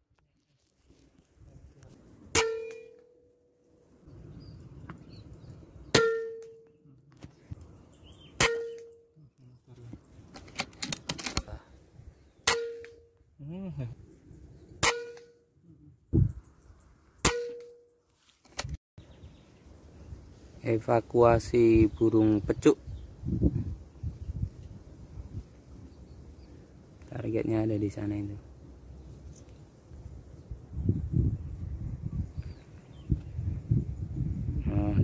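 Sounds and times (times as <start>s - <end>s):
short metallic ring: 2.3s - 3.6s, 6.0s - 6.7s, 8.4s - 9.1s.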